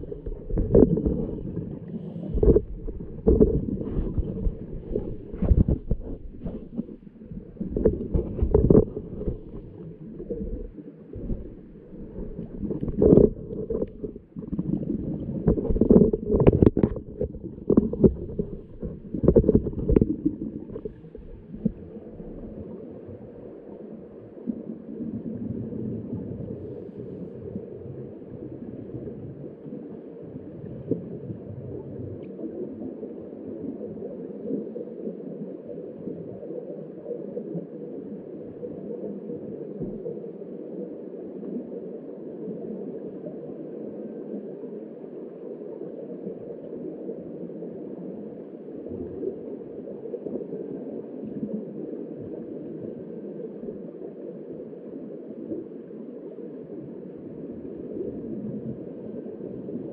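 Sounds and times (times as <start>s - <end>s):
steady low rumble: 0.0s - 23.4s
underwater regulator bubbles gurgling: 0.0s - 44.6s.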